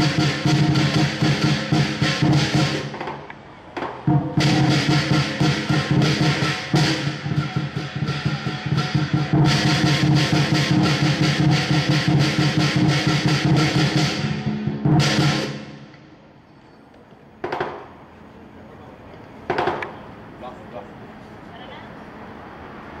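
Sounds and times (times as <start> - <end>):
cymbals clashing: 0.0 - 3.0, 4.1 - 16.6
drum beating: 0.0 - 16.3, 17.4 - 18.2, 19.4 - 20.4.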